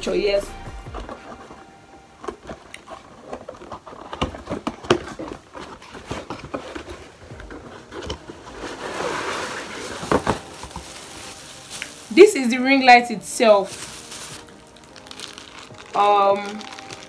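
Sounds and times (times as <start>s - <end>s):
cardboard rustling: 0.7s - 17.0s
cardboard box clicks and scrapes: 2.8s - 11.2s.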